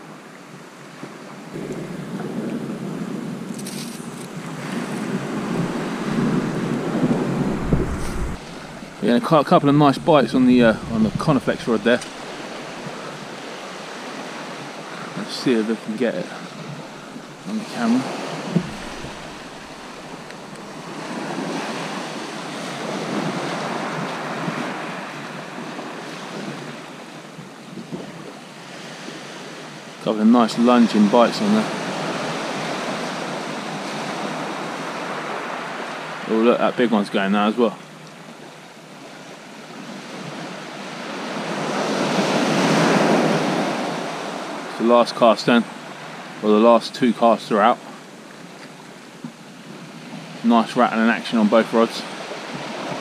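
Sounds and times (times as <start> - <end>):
waves breaking on beach: 0.0 - 53.0
wind on microphone: 1.5 - 14.8, 16.5 - 26.7.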